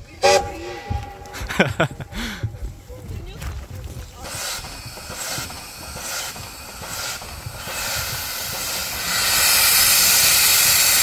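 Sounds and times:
steam locomotive chuffing: 0:00.0 - 0:02.9, 0:03.5 - 0:11.0
steam hissing: 0:04.1 - 0:11.0.

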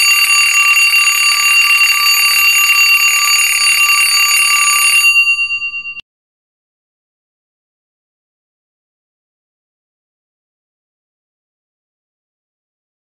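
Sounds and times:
timer alarm ringing: 0:00.0 - 0:06.0.

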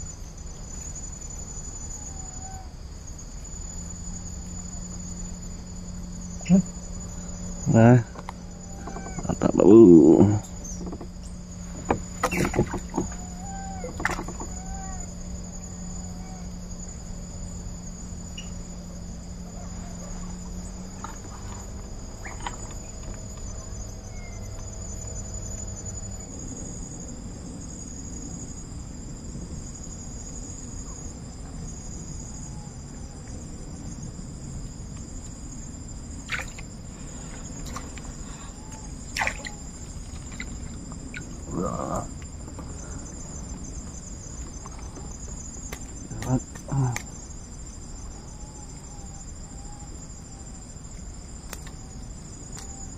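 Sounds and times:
insects chirping: 0:00.0 - 0:52.9
low hum: 0:00.0 - 0:52.9
short knocks: 0:10.4 - 0:14.6.

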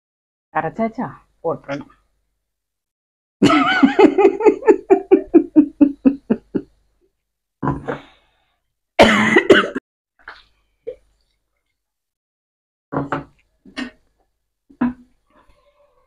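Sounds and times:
person laughing: 0:03.4 - 0:06.6.

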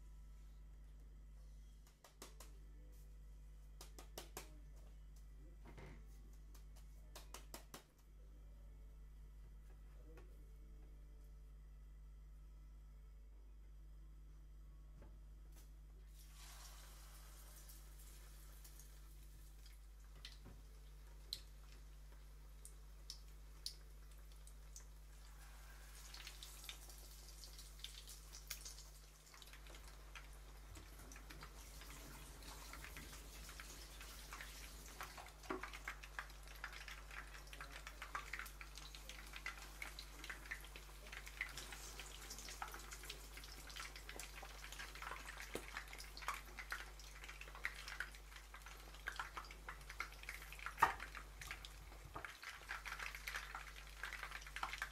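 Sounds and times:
chicken deep-frying in oil: 0:16.1 - 0:54.9.

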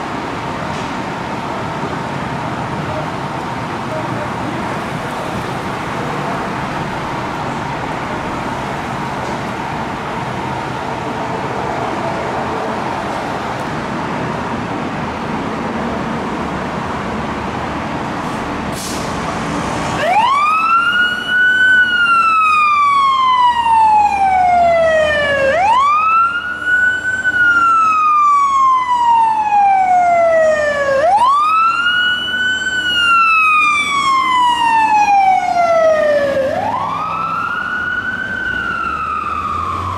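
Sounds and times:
fire engine siren wailing: 0:19.2 - 0:39.9.

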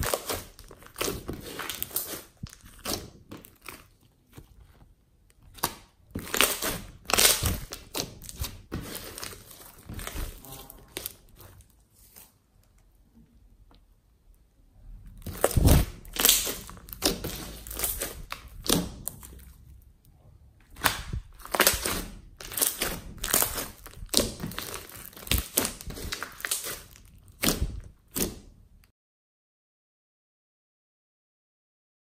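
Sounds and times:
plastic bag crinkling: 0:00.0 - 0:12.4, 0:15.2 - 0:19.6, 0:20.8 - 0:28.2
sticky slime squishes: 0:00.0 - 0:28.9.

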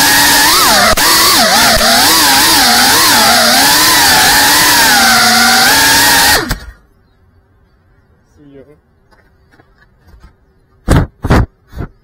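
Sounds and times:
drone motors whining: 0:00.0 - 0:07.1.

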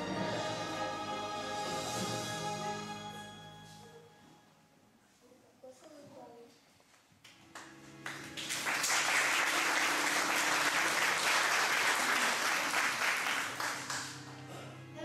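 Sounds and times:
audience applauding: 0:07.6 - 0:14.5.

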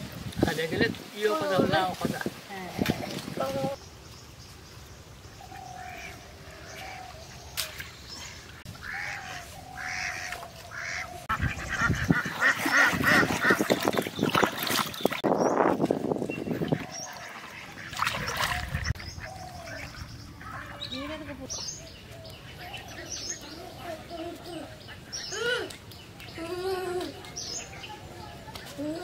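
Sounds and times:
ducks quacking: 0:08.2 - 0:14.8, 0:16.4 - 0:21.3
water splashing: 0:10.0 - 0:20.8.

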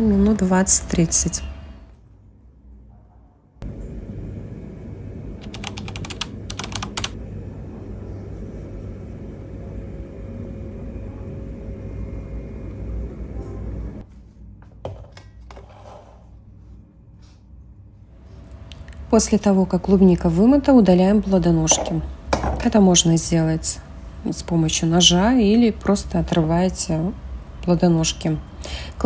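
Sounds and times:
rapid typing-like clicks: 0:05.4 - 0:07.2.

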